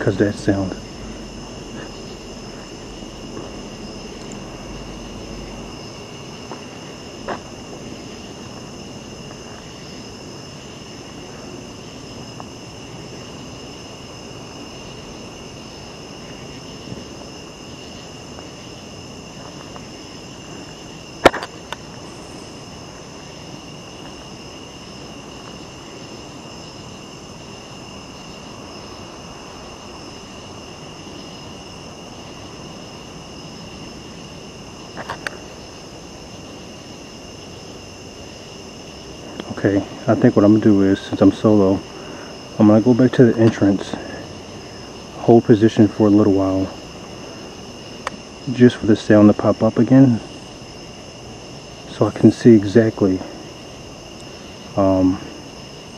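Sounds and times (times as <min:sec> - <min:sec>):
low rustling noise: 0:00.0 - 0:13.6
crickets and night insects trilling: 0:00.0 - 0:55.9.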